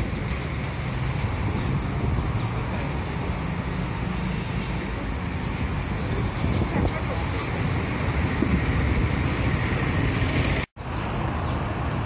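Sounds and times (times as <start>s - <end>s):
roadside traffic noise: 0.0s - 12.0s
wind on microphone: 5.3s - 10.6s.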